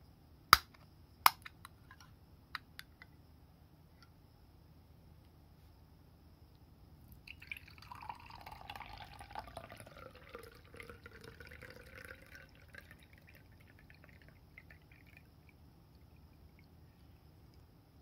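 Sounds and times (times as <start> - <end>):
liquid pouring into a glass: 7.2 - 16.8.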